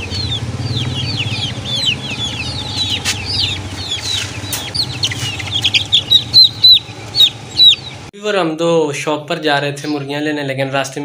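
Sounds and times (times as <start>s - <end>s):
low steady rumble: 0.0s - 8.1s
young chickens peeping: 0.0s - 8.1s, 9.8s - 10.1s.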